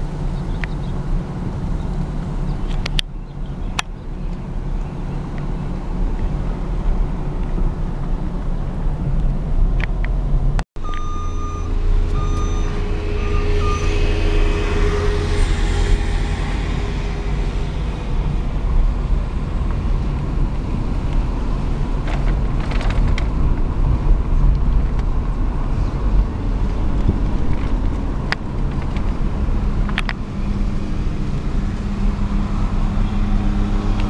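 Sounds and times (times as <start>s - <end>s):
car engine and tyre rumble: 0.0s - 34.0s
beeping tones: 10.8s - 16.4s
vehicle passing hiss: 12.7s - 19.6s.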